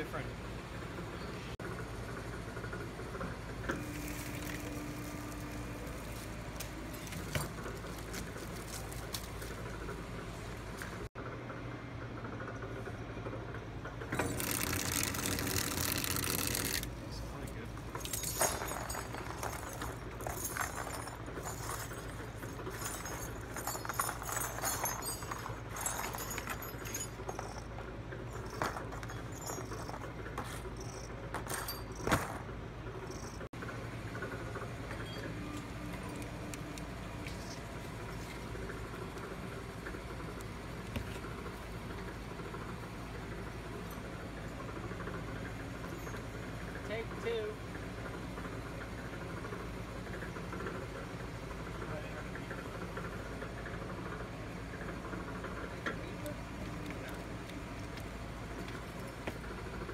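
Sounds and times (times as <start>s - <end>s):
cable stripping machine humming: 1.7s - 11.1s, 12.2s - 59.9s
wire strands clicking and rattling: 14.0s - 33.5s
metal cable armour clinking: 14.1s - 33.5s.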